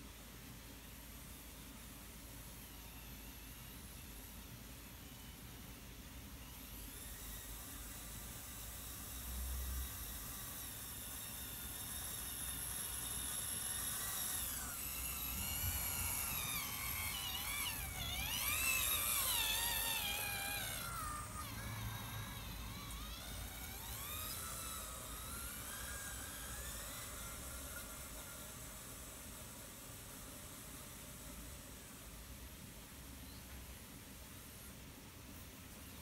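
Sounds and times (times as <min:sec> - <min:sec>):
electric motor whining: 0:06.2 - 0:32.9.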